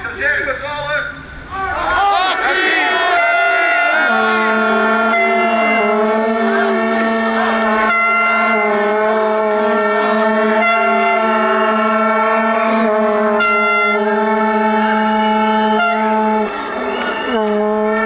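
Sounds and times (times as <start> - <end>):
horns blowing long notes: 2.0 - 18.0.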